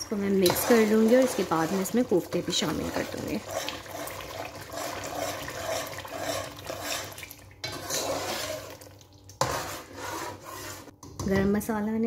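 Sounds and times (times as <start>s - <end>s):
spoon stirring thick gravy: 0.4s - 11.0s.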